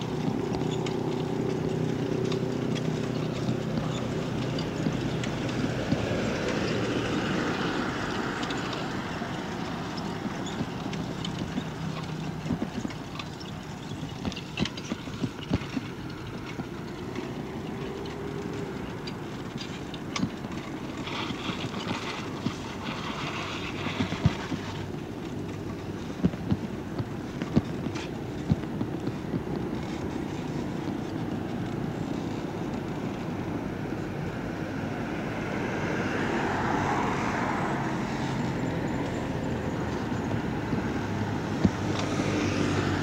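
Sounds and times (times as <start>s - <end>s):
bike clicks and rattles: 0.0s - 34.0s
bicycle rolling and wind noise: 0.0s - 43.0s
low traffic hum: 0.0s - 43.0s.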